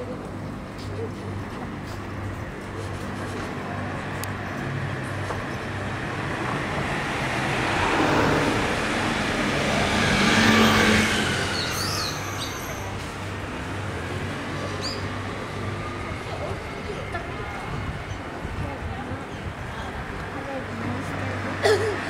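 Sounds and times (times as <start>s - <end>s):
street background noise: 0.0s - 22.0s
motorcycle passing: 5.8s - 12.9s.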